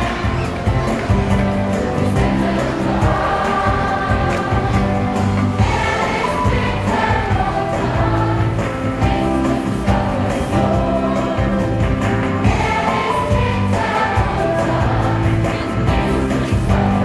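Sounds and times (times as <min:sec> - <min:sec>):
song with vocals and instruments: 0:00.0 - 0:17.0.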